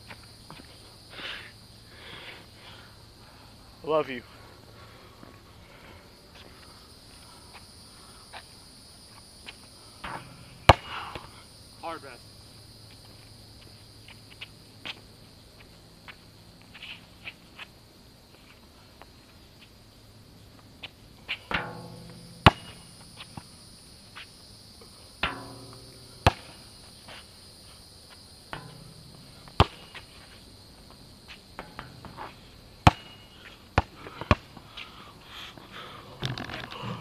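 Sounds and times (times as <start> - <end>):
crickets chirring: 0.0 - 37.0
basketball bouncing on asphalt: 10.0 - 11.3, 21.5 - 23.7, 25.2 - 26.9, 28.1 - 34.9.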